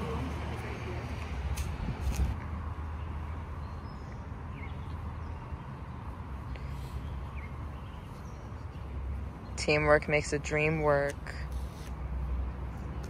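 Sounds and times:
wind rumble on microphone: 0:01.4 - 0:02.7.

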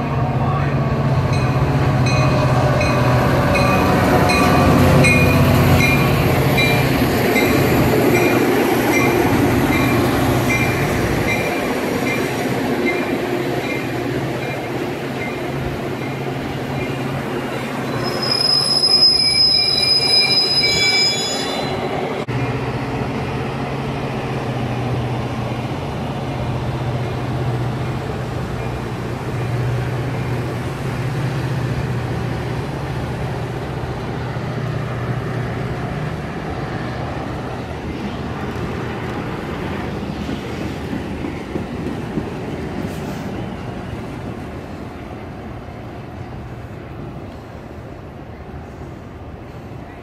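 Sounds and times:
train rumbling: 0:00.0 - 0:50.0
high wheel or brake squeal: 0:17.9 - 0:21.9.

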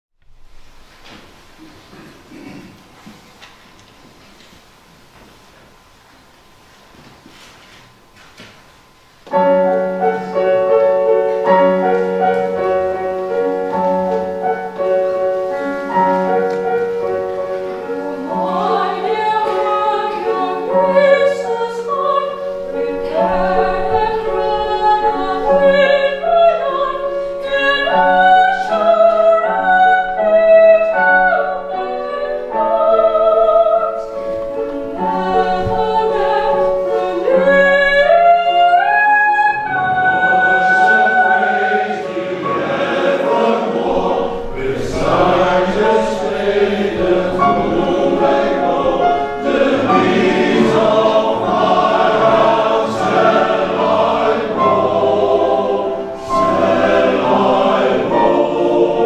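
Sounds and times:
slow held chords: 0:09.2 - 0:59.0
woman singing with vibrato: 0:17.6 - 0:42.2, 0:43.3 - 0:59.0.

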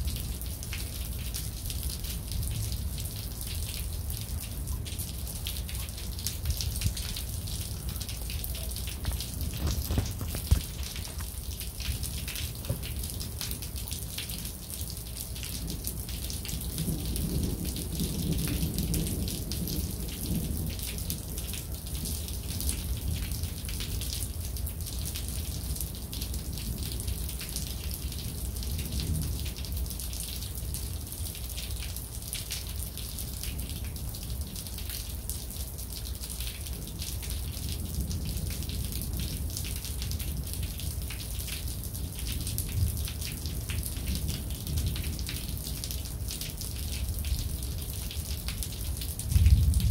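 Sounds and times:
rain patter: 0:00.0 - 0:49.9
distant thunder rumble: 0:49.3 - 0:49.9.

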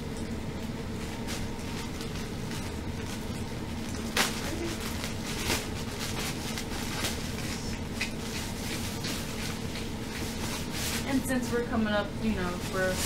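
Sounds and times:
plastic bag crinkling: 0:01.1 - 0:13.0.

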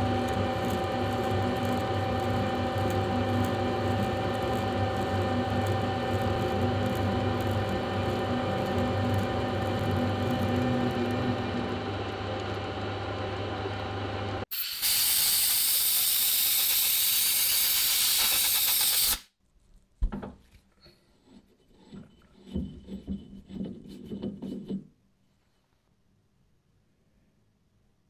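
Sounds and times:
metal lathe humming: 0:00.0 - 0:14.4
loud steady hiss: 0:14.5 - 0:19.2.

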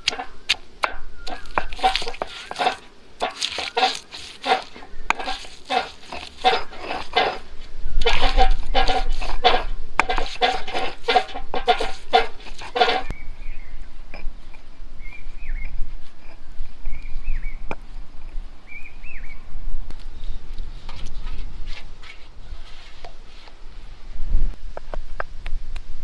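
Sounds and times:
stone roller pressing and knocking: 0:00.0 - 0:13.1
stone roller scraping on slab: 0:00.0 - 0:13.1, 0:20.2 - 0:23.6
bird chirping: 0:13.0 - 0:14.3, 0:15.0 - 0:17.7, 0:18.6 - 0:19.4.

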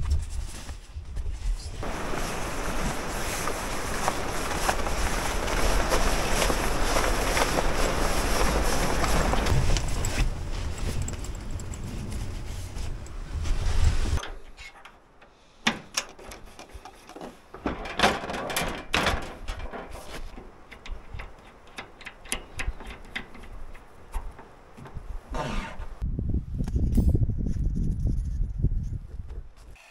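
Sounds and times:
camp gear clicking and knocking: 0:01.8 - 0:13.2, 0:14.2 - 0:25.6
steady rushing noise: 0:01.8 - 0:14.2.

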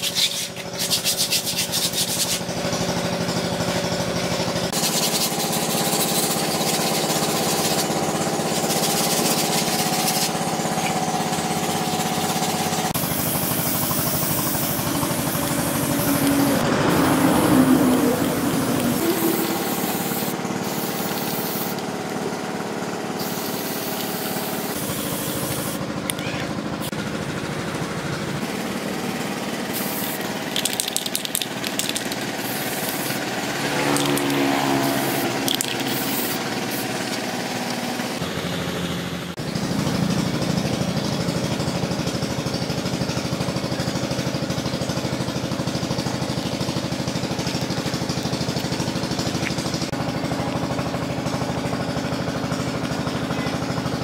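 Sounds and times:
engine-like hum: 0:00.0 - 0:54.0
aerosol spray can hissing: 0:04.8 - 0:10.4, 0:12.3 - 0:17.5, 0:18.3 - 0:21.9, 0:23.2 - 0:25.8, 0:29.7 - 0:37.2.

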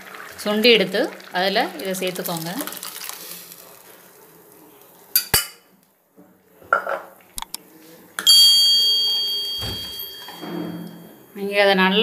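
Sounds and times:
metal utensils clinking on pan: 0:08.2 - 0:11.3.

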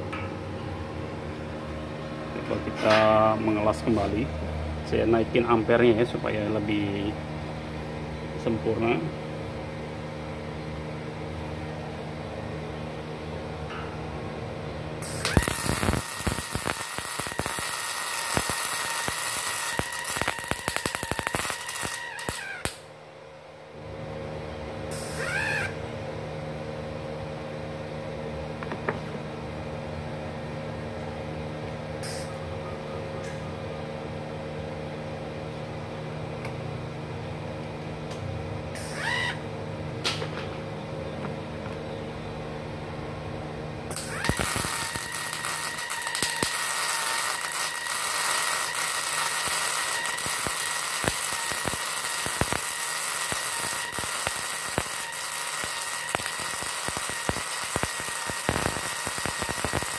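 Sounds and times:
welder hum: 0:13.7 - 0:23.0, 0:24.8 - 0:26.0, 0:32.0 - 0:32.4, 0:38.0 - 0:39.5, 0:43.5 - 0:59.9
welding arc crackling: 0:15.0 - 0:22.9, 0:24.9 - 0:25.8, 0:32.0 - 0:32.4, 0:38.8 - 0:39.3, 0:43.9 - 0:59.9.

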